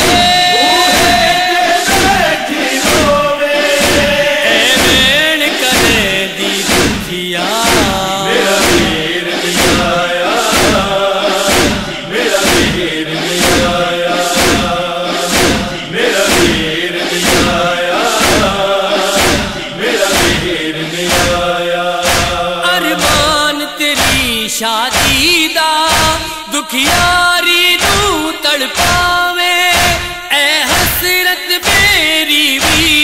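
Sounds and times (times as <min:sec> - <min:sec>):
chorus chanting a refrain: 0:00.0 - 0:25.3
steady beat: 0:00.0 - 0:26.3, 0:27.8 - 0:33.0.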